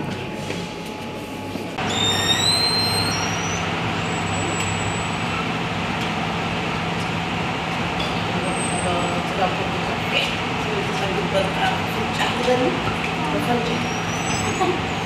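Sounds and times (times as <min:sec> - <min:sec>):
high squealing tones: 0:01.8 - 0:05.5, 0:13.7 - 0:15.0
vehicle running noise: 0:01.8 - 0:15.0.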